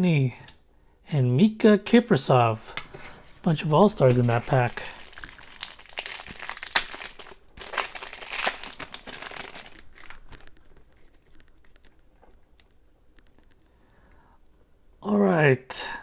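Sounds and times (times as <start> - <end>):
cards rustling and clicking: 2.8 - 13.7
card wrapper tearing and crinkling: 3.4 - 13.5.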